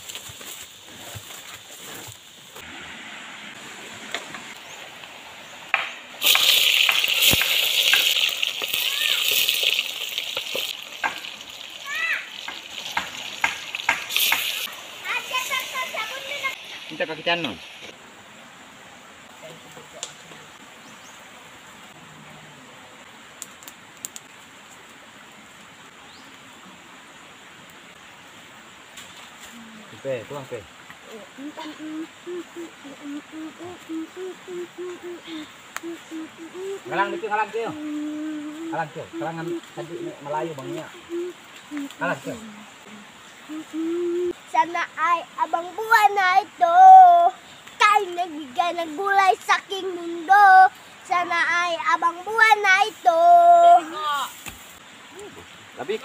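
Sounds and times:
quiet outdoor sounds: 0:00.0 - 0:56.0
food sizzling in pot: 0:01.2 - 0:18.0, 0:43.2 - 0:56.0.

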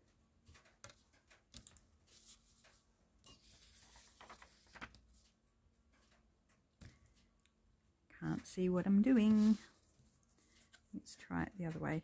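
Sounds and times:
paper rustling: 0:00.5 - 0:05.4, 0:09.2 - 0:10.8.

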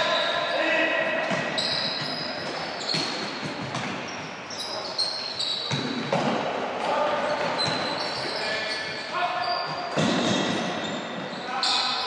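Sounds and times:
athletic shoes squeaking: 0:00.0 - 0:06.2, 0:07.0 - 0:12.0
footfalls on court floor: 0:01.2 - 0:04.2.

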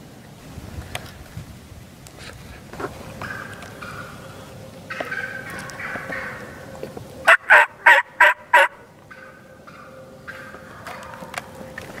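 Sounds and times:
turkey gobbling: 0:02.8 - 0:11.9.

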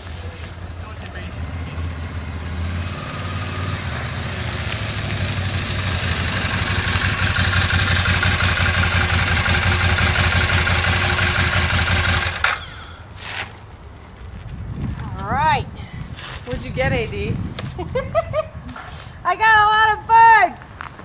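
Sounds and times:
motorcycle engine running: 0:03.7 - 0:12.6.

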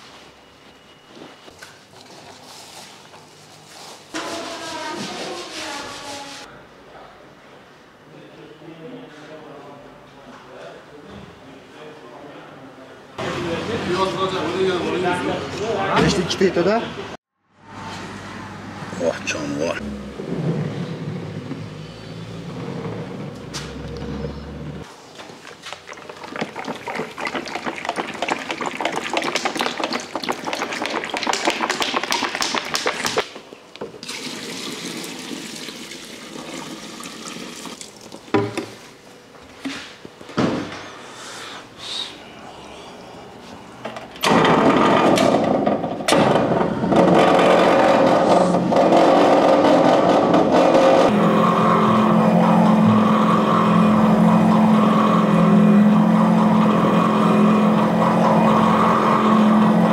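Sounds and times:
oil glugging from bottle: 0:25.4 - 0:33.1.

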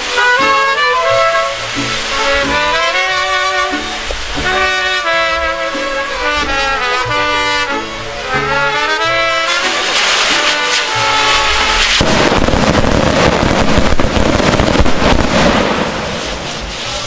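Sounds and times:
brass band playing: 0:00.0 - 0:16.8.

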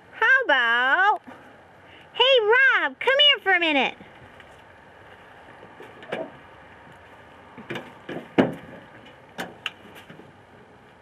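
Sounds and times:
knocks and thumps: 0:07.6 - 0:10.3.

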